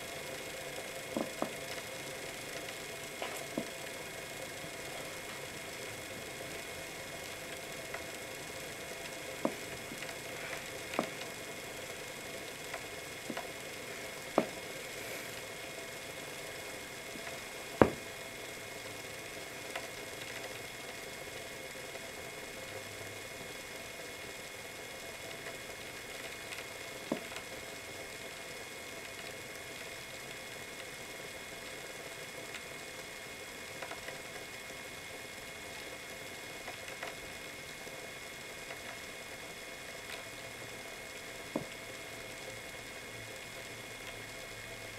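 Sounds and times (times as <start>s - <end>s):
skateboard wheel whirring: 0.0s - 28.0s.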